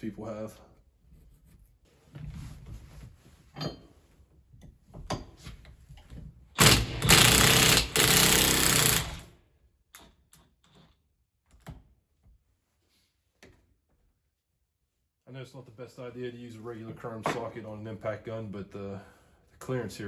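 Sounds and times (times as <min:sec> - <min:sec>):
impact wrench hammering: 0:06.6 - 0:09.3.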